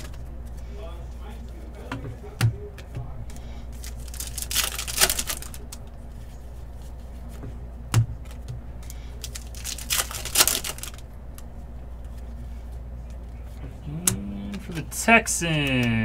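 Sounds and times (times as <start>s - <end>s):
cards rustling: 2.8s - 7.4s, 8.2s - 14.8s
wrapper crinkling: 3.8s - 5.8s, 9.2s - 11.0s.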